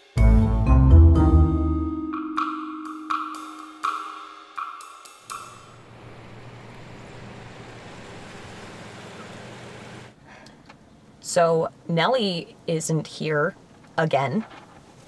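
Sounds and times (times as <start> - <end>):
ringing cymbal hits: 2.1 - 6.0.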